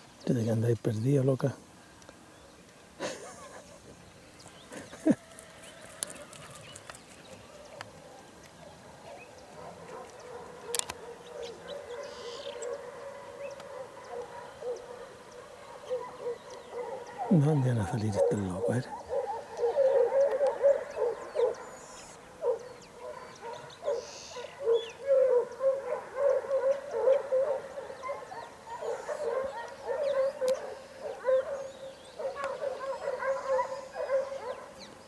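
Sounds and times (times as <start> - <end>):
hounds yelping: 4.7 - 35.0.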